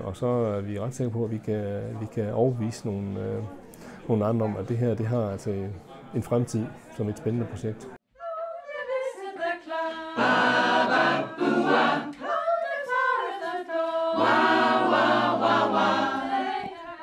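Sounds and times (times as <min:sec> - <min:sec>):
mixed choir singing a cappella: 0:08.2 - 0:17.0.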